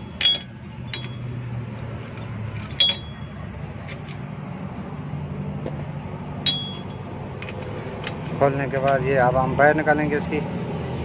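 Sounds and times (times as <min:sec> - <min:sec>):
socket tool clinking on steel: 0:00.0 - 0:01.4, 0:02.1 - 0:04.3, 0:06.4 - 0:08.3.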